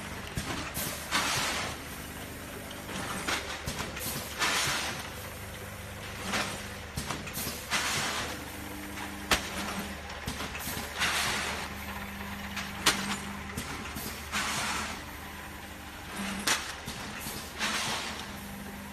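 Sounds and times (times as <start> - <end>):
packing machine humming: 0.0 - 18.9.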